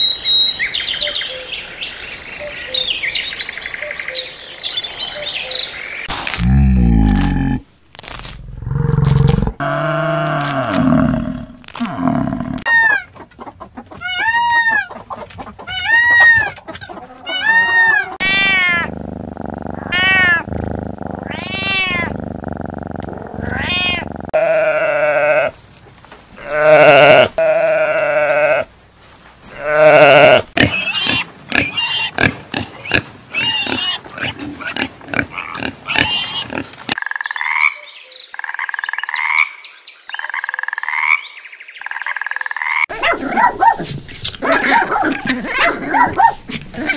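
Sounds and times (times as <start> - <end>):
peacock calling: 13.8 - 19.0
sheep bleating: 23.4 - 25.6, 26.4 - 28.7.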